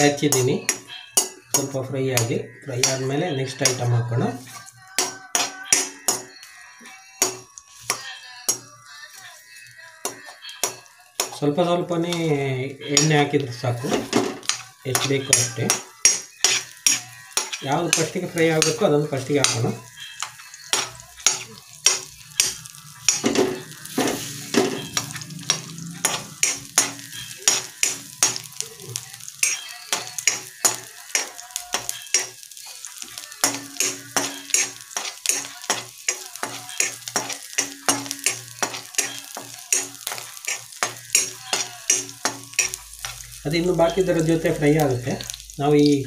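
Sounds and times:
garlic sizzling in oil: 0.0 - 46.0
ladle scraping and tapping a pan: 13.9 - 18.8.

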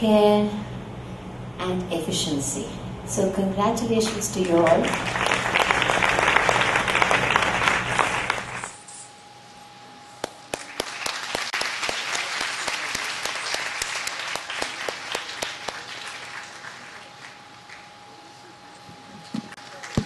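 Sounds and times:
audience applauding: 4.6 - 8.8, 10.2 - 17.9.

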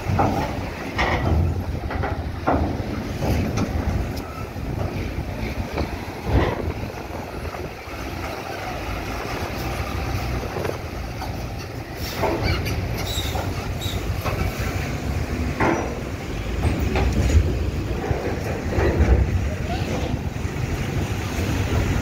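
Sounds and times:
metallic clanks of wheels on ramp: 0.0 - 7.2, 10.5 - 20.3.

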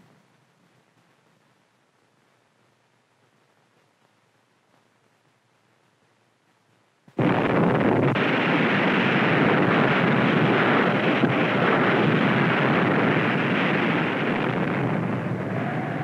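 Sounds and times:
explosion blast roar: 7.2 - 16.0.

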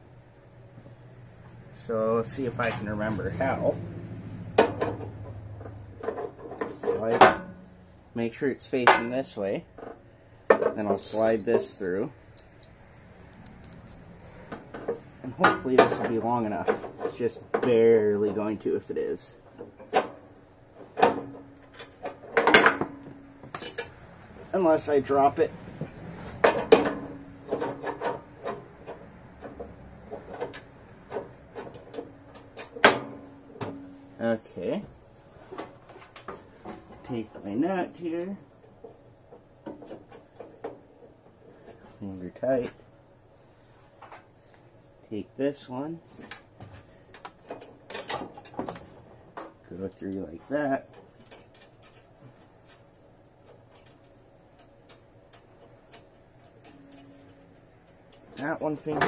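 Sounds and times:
metal parts knocking and scraping: 9.8 - 17.8, 19.6 - 24.0, 26.3 - 33.8.

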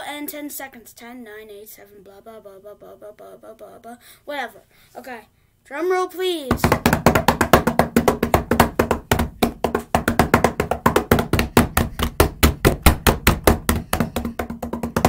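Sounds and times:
hands drumming on a hard surface: 6.5 - 15.0.

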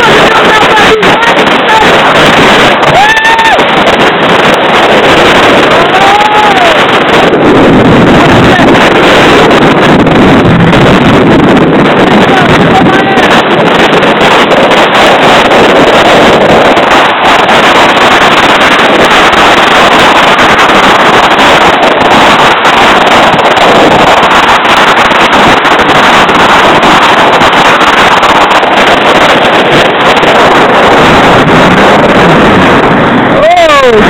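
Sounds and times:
jet ski engine: 0.0 - 34.0
wind blasting microphone: 0.0 - 34.0.

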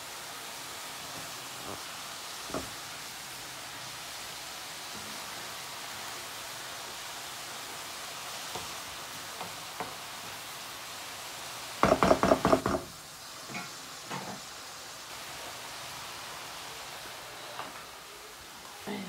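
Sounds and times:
cabbage sizzling in a pan: 0.0 - 19.0
wooden spatula knocking a pan: 11.8 - 14.4.

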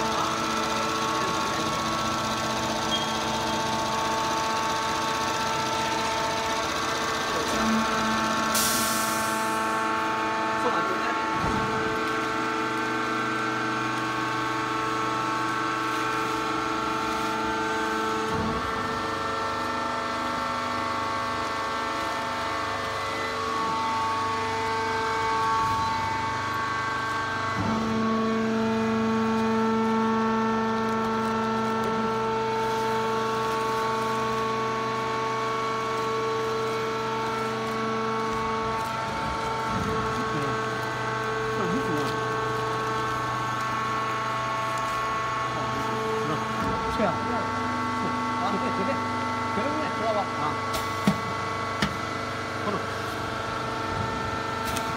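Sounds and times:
press machine humming: 0.0 - 54.9.

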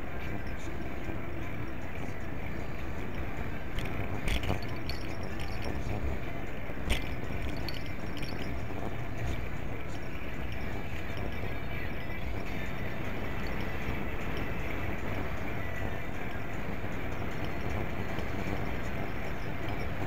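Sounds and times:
bicycle rolling and wind rumble: 0.0 - 20.0
rattling clicks from bumps: 0.8 - 6.2, 6.8 - 9.6.

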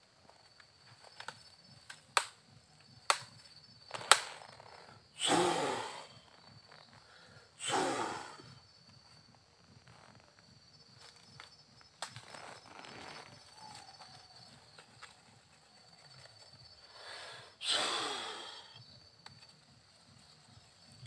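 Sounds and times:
sharp clicks: 3.0 - 4.8
man sighing: 17.0 - 18.8.

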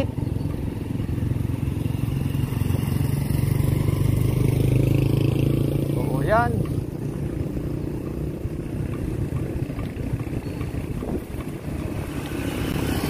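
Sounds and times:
bicycle road noise: 0.0 - 13.0
motor traffic: 0.0 - 13.0
wind rumbling on microphone: 5.7 - 13.0.

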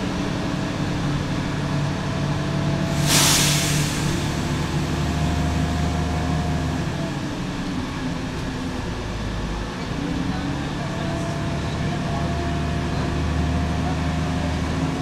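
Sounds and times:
bus ride noise: 0.0 - 15.0
diesel bus engine running: 0.0 - 15.0
short loud hiss: 3.0 - 4.4.

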